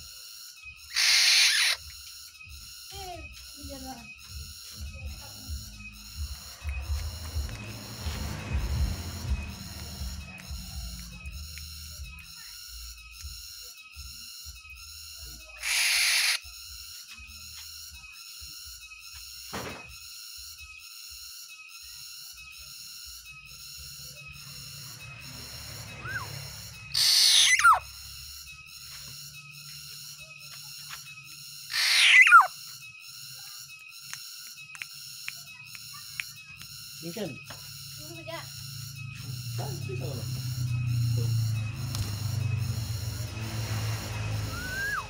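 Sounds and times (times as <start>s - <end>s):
faint regular pulsing: 0.0s - 45.0s
bird rasping calls: 0.9s - 1.8s, 15.6s - 16.4s, 26.9s - 27.9s, 31.7s - 32.6s.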